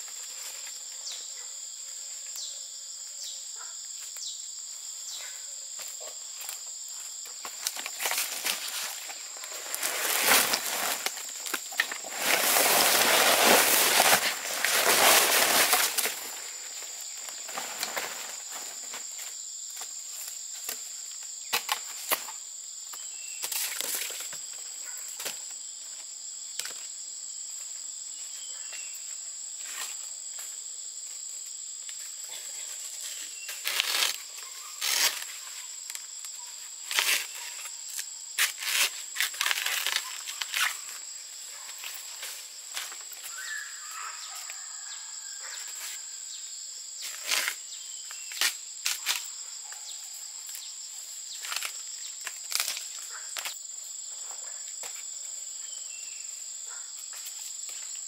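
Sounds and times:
insects droning: 0.0s - 58.0s
rustling: 7.5s - 16.5s.

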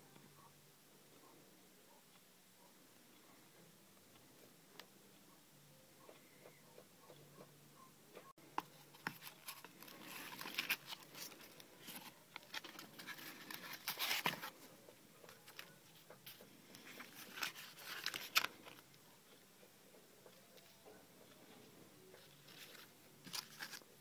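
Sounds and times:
packaging rustling and crinkling: 8.8s - 14.7s, 15.4s - 18.8s, 22.4s - 24.0s.

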